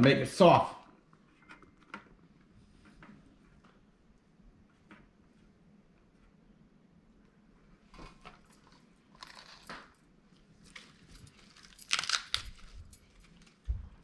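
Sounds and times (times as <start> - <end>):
lettuce leaves rustling and crackling: 10.6 - 14.0.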